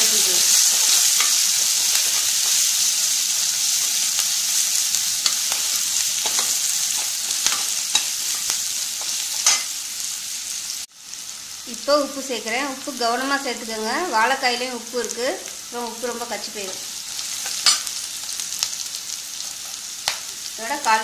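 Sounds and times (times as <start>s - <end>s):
onions sizzling in hot oil: 0.0s - 21.0s
spatula stirring: 0.5s - 9.7s.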